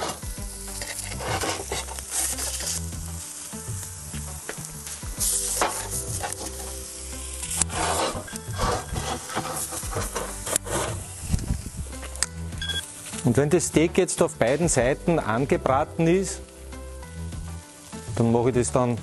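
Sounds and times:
steak sizzling on grill plate: 0.0 - 19.0
metal tongs scraping plate: 0.8 - 2.7, 7.6 - 11.0.

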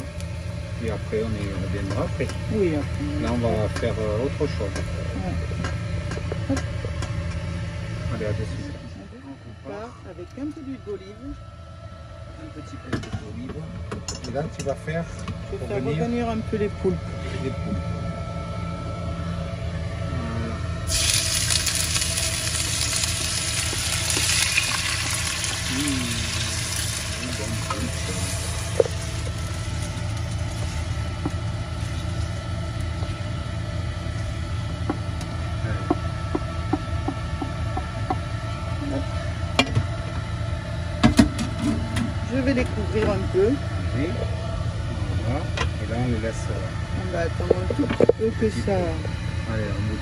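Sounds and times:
food sizzling in hot oil: 20.9 - 32.4.

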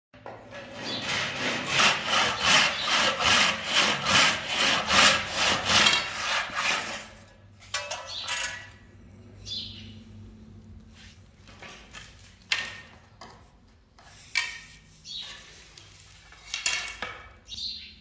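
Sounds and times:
knocks and scrapes: 0.2 - 9.0, 10.8 - 17.4
handsaw cutting wood: 0.6 - 7.3.

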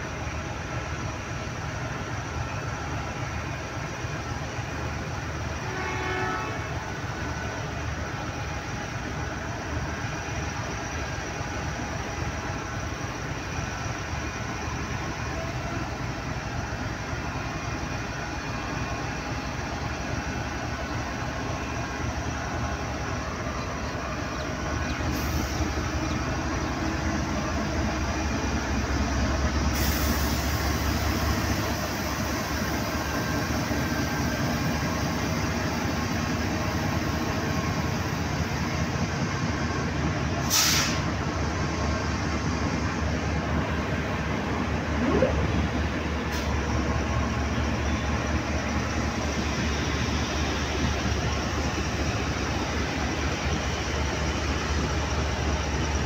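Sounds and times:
locomotive engine rumble: 0.0 - 56.0
rail noise: 0.0 - 56.0
train horn note: 5.6 - 6.9.

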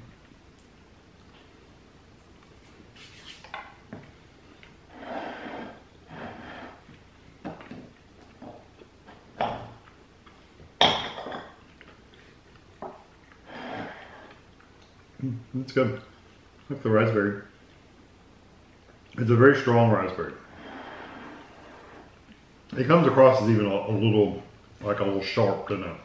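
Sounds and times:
chewing and mouth sounds: 14.2 - 15.3.

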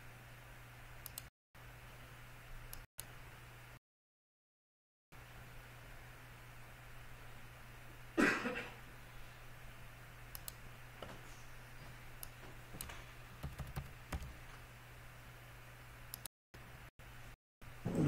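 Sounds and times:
faint steady hum: 5.2 - 18.0
mouse clicks: 10.3 - 10.6
keyboard keystrokes: 12.2 - 14.4.

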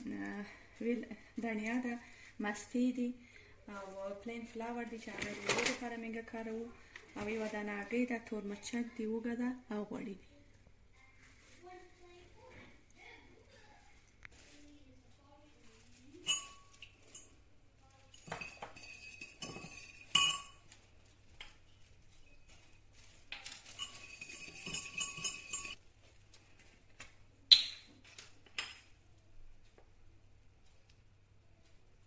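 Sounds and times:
whisk clinking against ceramic bowl: 16.2 - 17.4, 18.1 - 20.6, 23.7 - 25.8
rapid whisking: 23.8 - 25.8.

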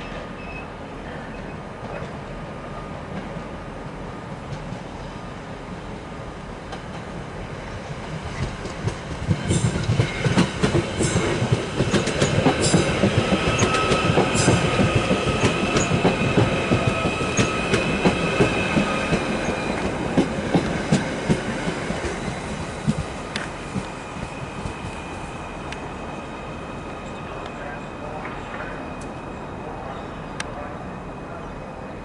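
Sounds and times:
high-pitched train whine: 7.3 - 32.0
train wheels clacking over rail joints: 8.2 - 24.9.

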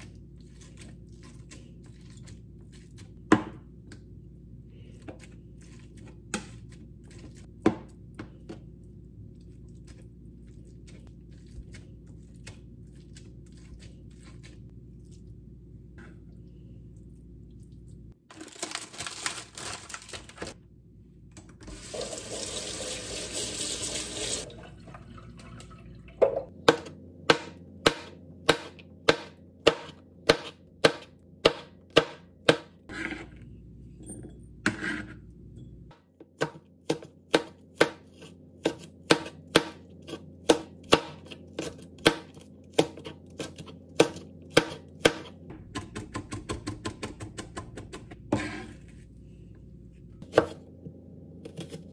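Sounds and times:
plastic pack crinkling: 18.3 - 20.6
kitchen tap running: 21.6 - 26.5
knife chopping on plastic board: 26.6 - 32.8, 36.2 - 48.6.

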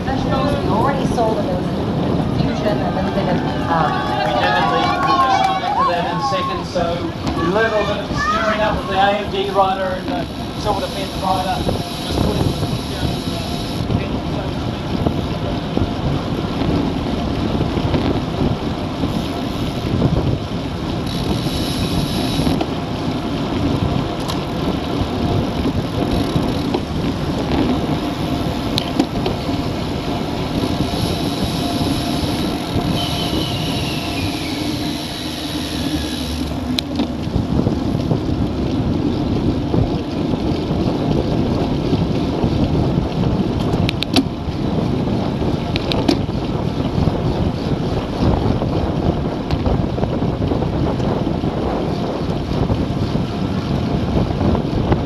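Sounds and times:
tyre and road rumble: 0.0 - 55.0
wind rushing over microphone: 0.0 - 55.0.

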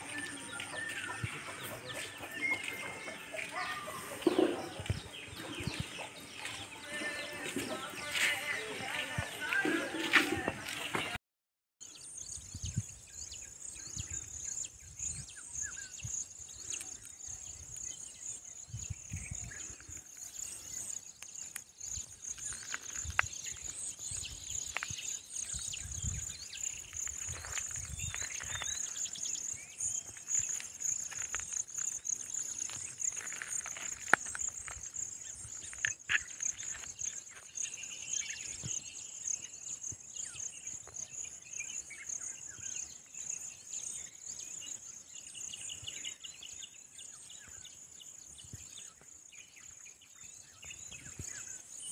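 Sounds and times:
bird chirps: 0.0 - 10.1, 11.8 - 51.9
insects droning: 15.5 - 51.9.

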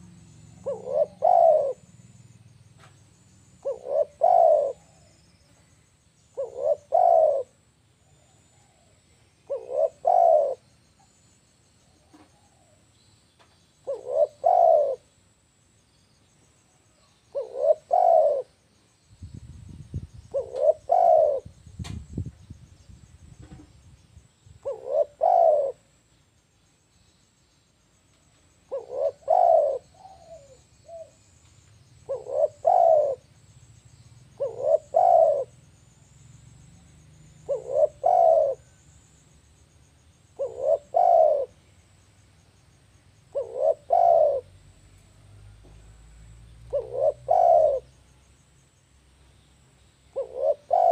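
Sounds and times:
dove cooing: 0.0 - 2.0, 3.6 - 5.4, 6.3 - 10.7, 13.8 - 15.1, 17.3 - 18.6, 20.3 - 21.6, 24.6 - 25.9, 28.6 - 31.2, 32.0 - 33.3, 34.3 - 35.6, 37.2 - 38.8, 40.3 - 41.6, 43.3 - 48.0, 50.1 - 50.9.

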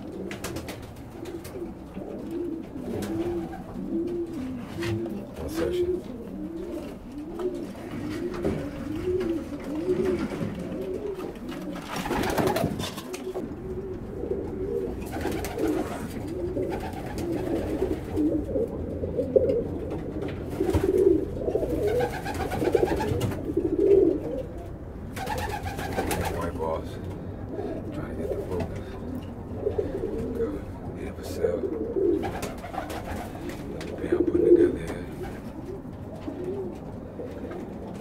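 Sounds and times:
pigeons cooing: 0.0 - 38.0.

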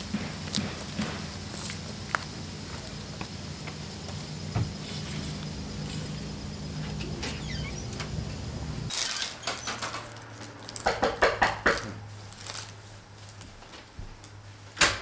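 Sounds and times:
low room hum: 0.0 - 15.0
crinkles and clicks of handling: 8.9 - 11.0, 11.7 - 14.4.

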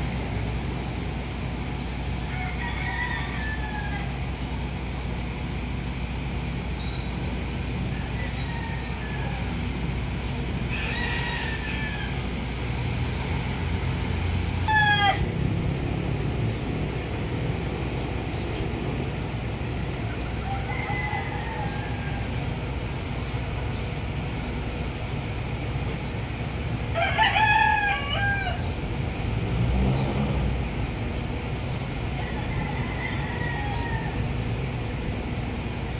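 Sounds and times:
rooster crowing: 2.2 - 4.3, 7.8 - 9.8, 10.6 - 12.5, 14.5 - 15.4, 20.0 - 22.7, 26.9 - 28.8, 32.1 - 34.4.

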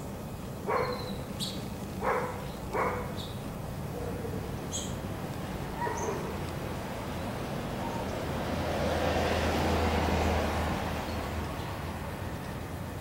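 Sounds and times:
low traffic hum: 0.0 - 13.0
car passing: 3.7 - 13.0.

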